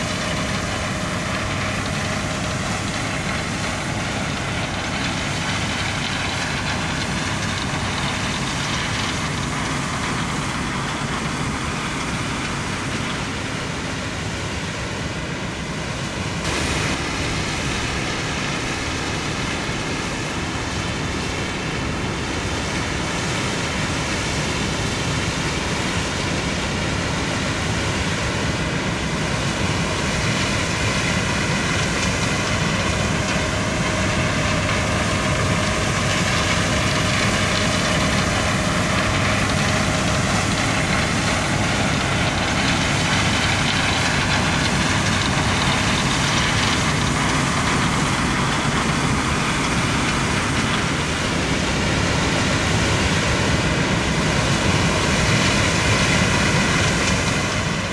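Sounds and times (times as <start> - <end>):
combine harvester machinery: 0.0 - 57.9.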